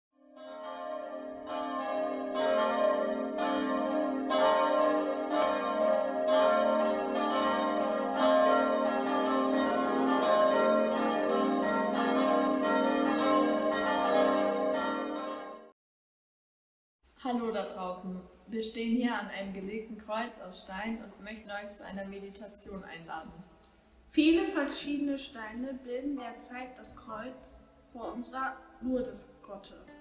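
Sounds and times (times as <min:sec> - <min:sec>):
church bells ringing: 0:00.2 - 0:15.7.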